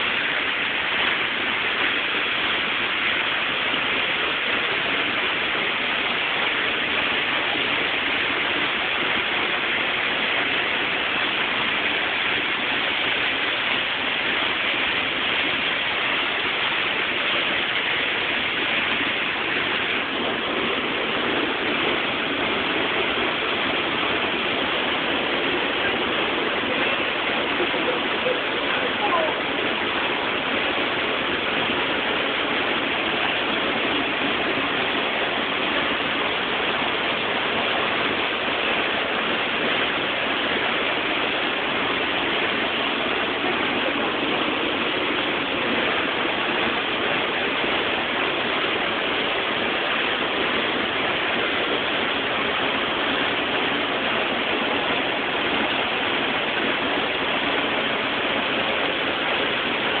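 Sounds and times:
waterfall rushing into pool: 0.0s - 60.0s.

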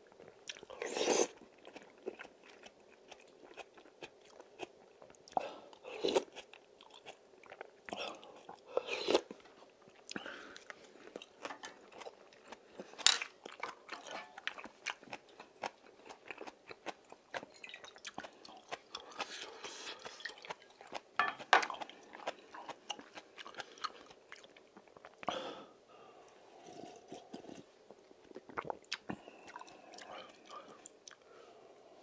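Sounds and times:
person chewing: 0.1s - 25.3s, 26.3s - 31.4s
slurping broth: 0.8s - 1.4s, 8.8s - 9.3s.

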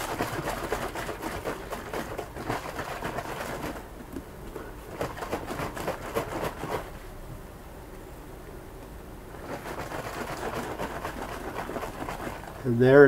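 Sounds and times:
liquid sloshing in shaken jug: 0.0s - 4.1s, 4.9s - 7.0s, 9.3s - 12.8s.

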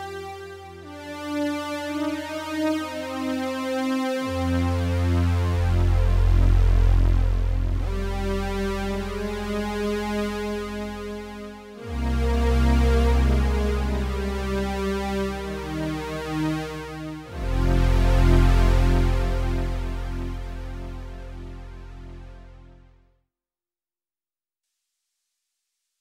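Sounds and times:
synthesizer drone chords: 0.0s - 23.0s
deep synth bass: 4.3s - 23.0s.

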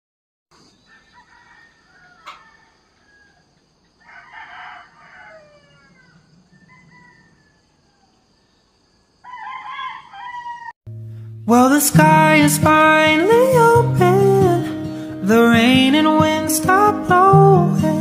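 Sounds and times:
roosters crowing: 0.6s - 8.6s, 9.2s - 10.8s
sharp click: 2.2s - 2.5s.

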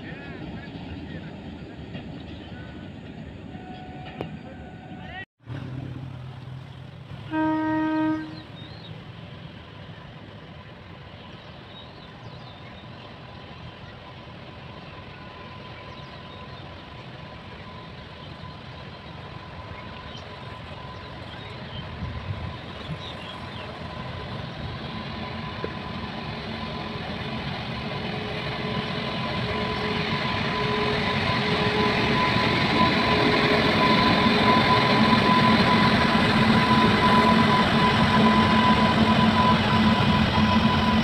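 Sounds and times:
locomotive rumble: 0.0s - 41.0s
locomotive air horn toot: 7.2s - 8.6s, 28.1s - 41.0s.

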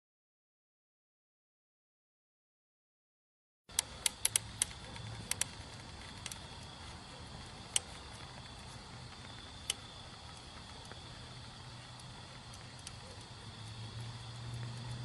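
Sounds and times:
molten metal popping and crackling: 3.7s - 15.0s.

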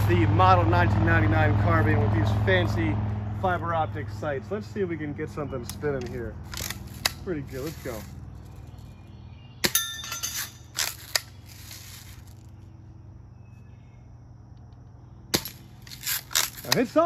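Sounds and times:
metallic ring: 9.6s - 10.8s.

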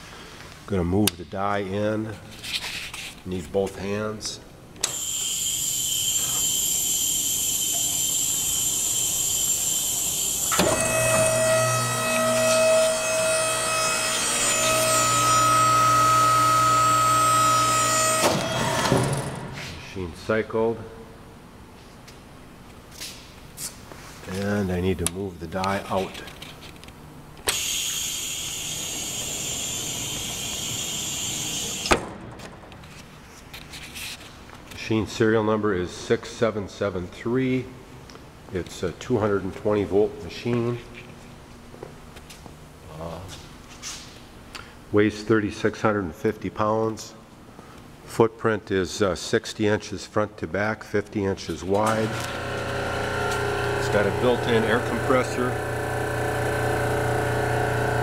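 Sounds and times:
motor hum with steady tones: 4.8s - 19.5s, 27.4s - 32.1s, 51.8s - 58.0s.

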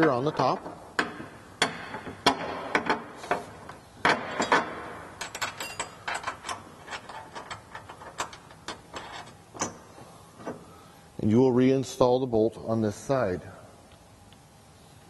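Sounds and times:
metallic clicks of bolts and nuts: 4.0s - 9.8s.

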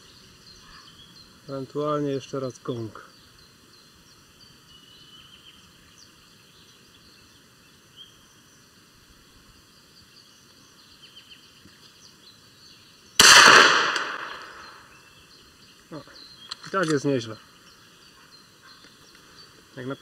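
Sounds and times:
birds chirping: 0.0s - 20.0s
pistol shot: 13.2s - 14.9s.

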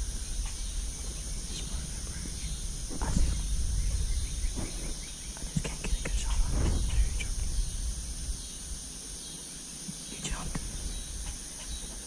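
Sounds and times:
low rumble: 0.0s - 9.2s
high insect hum: 0.0s - 12.0s.

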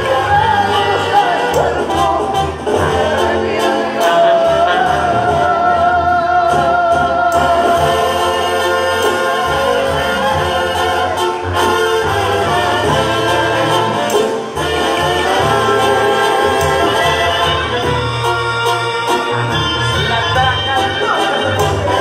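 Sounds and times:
person singing: 0.0s - 11.3s
brass band playing: 0.0s - 22.0s.

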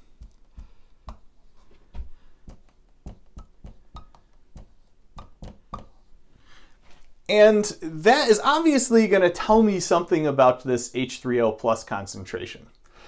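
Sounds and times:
marker tapping on whiteboard: 0.2s - 1.3s, 2.4s - 6.0s.

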